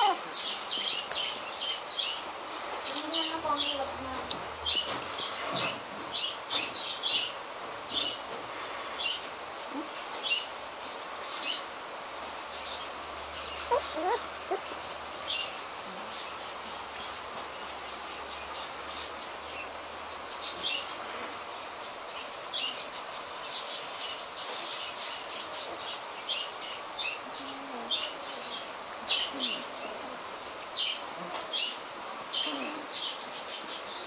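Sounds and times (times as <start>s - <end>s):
steady hiss: 0.0s - 34.0s
puppies squeaking: 13.6s - 14.8s.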